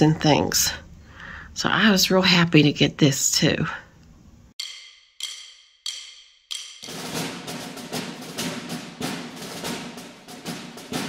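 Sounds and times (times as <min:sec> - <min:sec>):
fast steady drumming: 0:04.6 - 0:11.0
sharp struck percussion notes: 0:04.6 - 0:11.0.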